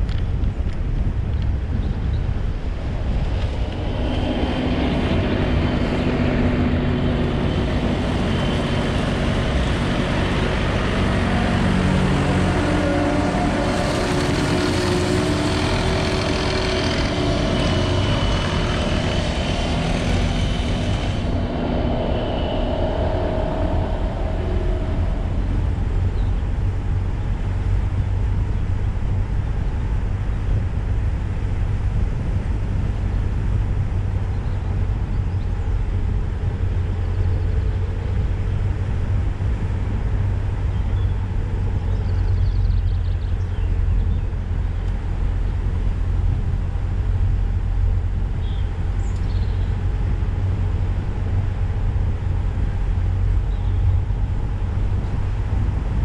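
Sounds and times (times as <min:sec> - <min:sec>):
car engine and tyre road noise: 0:00.0 - 0:56.0
faint hum drifting in pitch: 0:00.0 - 0:56.0.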